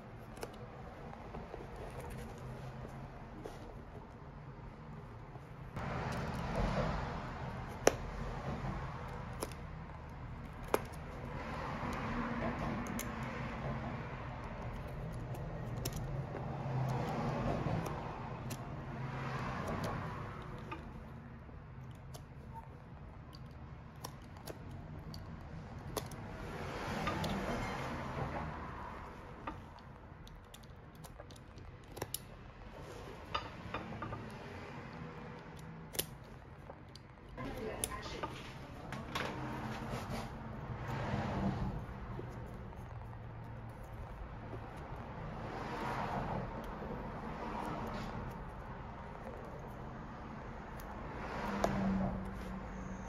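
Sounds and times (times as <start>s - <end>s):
utility knife cutting plastic: 6.0s - 28.1s
sharp clicks and snaps: 7.4s - 27.6s, 28.5s - 38.4s.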